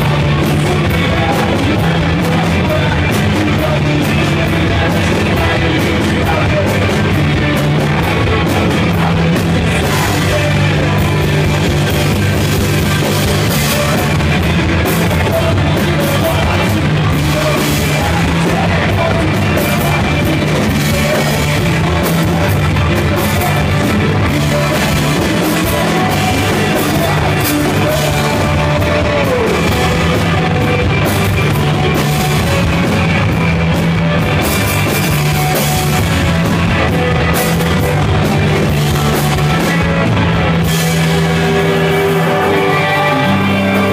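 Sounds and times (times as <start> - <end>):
man singing into microphone: 0.0 - 11.9, 13.3 - 30.4, 41.9 - 43.9
bass guitar: 0.0 - 43.9
drum kit: 0.0 - 43.9
electric guitars: 0.0 - 43.9.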